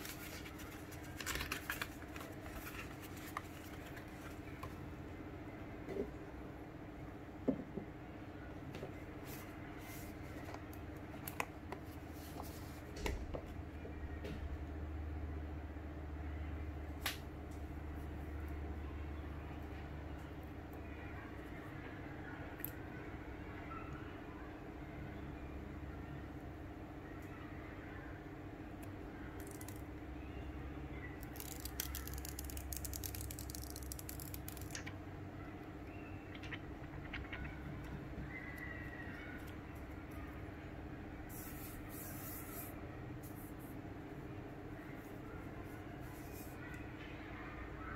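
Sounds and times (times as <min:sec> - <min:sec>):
plastic film crinkling: 0:00.0 - 0:04.6, 0:31.2 - 0:34.9.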